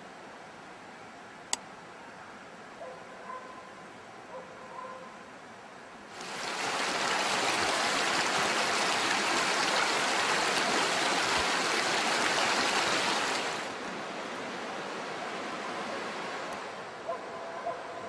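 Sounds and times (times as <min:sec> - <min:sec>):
flowing river water: 0:06.1 - 0:17.2.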